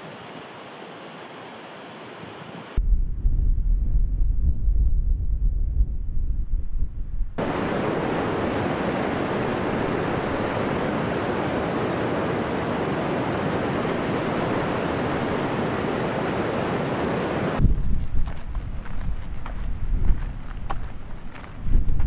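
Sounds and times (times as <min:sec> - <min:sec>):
wind rumble on microphone: 0:02.8 - 0:22.0
stream rushing over rocks: 0:07.4 - 0:17.6.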